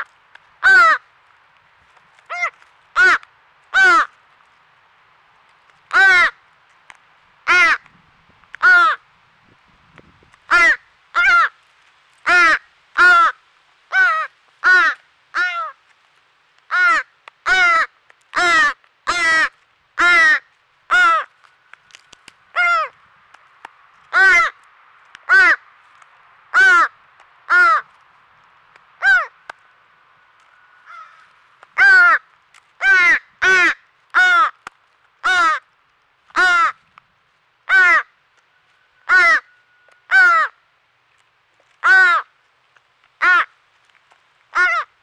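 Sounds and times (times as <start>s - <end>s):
young crow begging caws: 0.6s - 1.1s, 2.2s - 4.2s, 5.9s - 6.4s, 7.4s - 7.9s, 8.6s - 9.0s, 10.5s - 11.6s, 12.2s - 15.8s, 16.7s - 23.0s, 24.1s - 24.6s, 25.2s - 25.7s, 26.5s - 28.0s, 29.0s - 29.4s, 30.8s - 35.7s, 36.3s - 36.8s, 37.6s - 38.2s, 39.0s - 40.6s, 41.8s - 42.4s, 43.2s - 43.6s, 44.5s - 45.0s.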